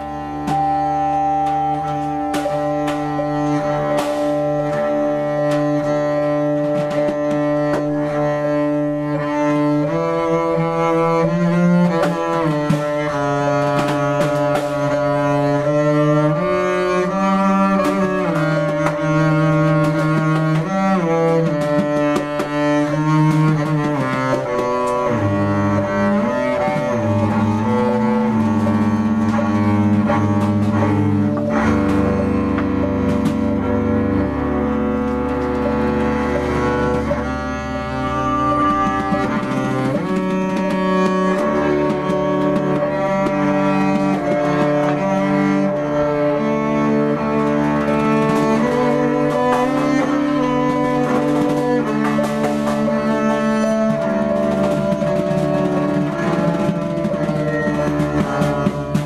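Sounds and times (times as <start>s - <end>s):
bowed double bass: 0.0s - 59.0s
vibraphone struck and bowed: 0.0s - 59.0s.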